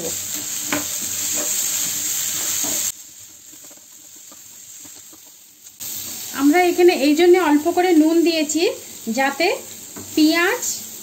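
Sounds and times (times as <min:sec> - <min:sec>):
vegetables sizzling in a frying pan: 0:00.0 - 0:11.0
wooden spatula scraping pan: 0:00.3 - 0:02.9.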